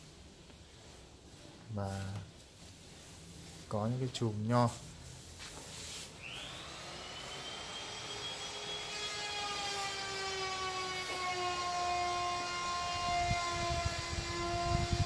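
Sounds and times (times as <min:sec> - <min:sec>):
machine whine: 0:06.2 - 0:15.0.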